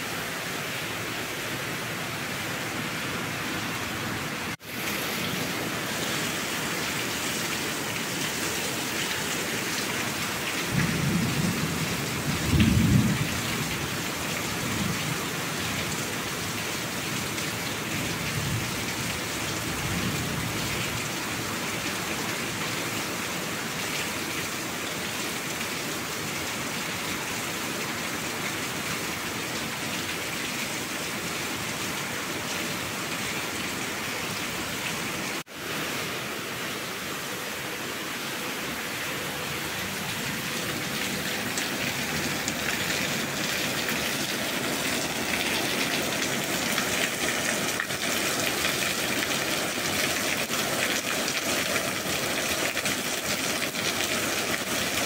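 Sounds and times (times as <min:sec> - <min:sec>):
steady rain: 0:00.0 - 0:55.0
low rolls of thunder: 0:10.7 - 0:13.7.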